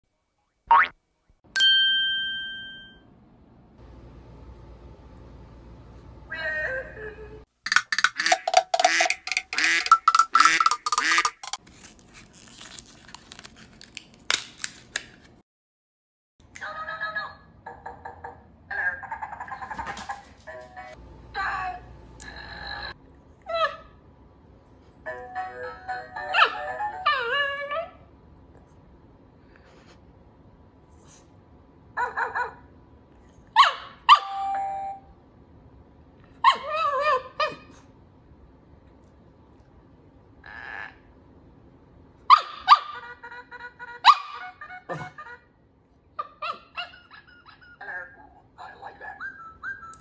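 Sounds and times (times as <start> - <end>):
electronic chime: 1.6 - 3.0
toy bark-like calls: 7.7 - 11.6
warbling voice-like toy call: 8.0 - 11.6
toy yelps: 33.6 - 34.5, 36.4 - 37.7, 42.3 - 45.4, 46.2 - 50.0.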